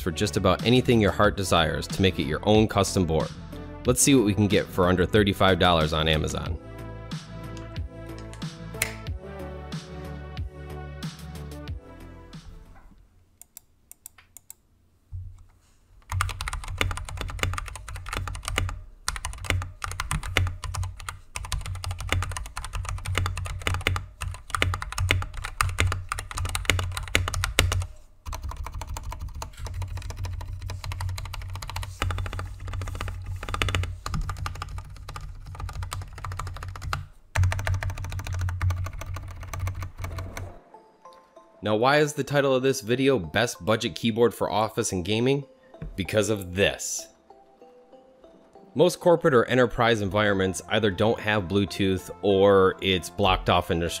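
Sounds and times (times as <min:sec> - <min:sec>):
mechanical keyboard typing: 0:16.0 - 0:40.5.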